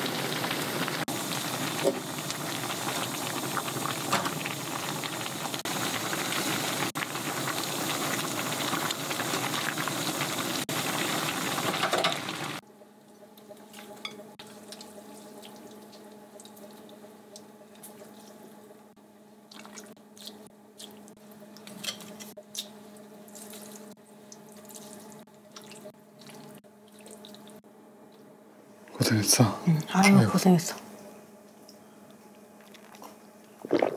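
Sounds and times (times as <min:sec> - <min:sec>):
soup boiling: 0:00.0 - 0:12.6, 0:32.7 - 0:33.9
low steady hum: 0:10.7 - 0:33.9.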